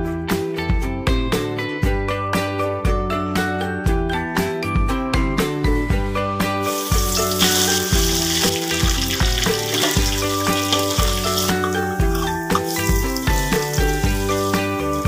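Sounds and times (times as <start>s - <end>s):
background music with beat: 0.0s - 15.0s
oil sizzling in a wok: 6.4s - 15.0s.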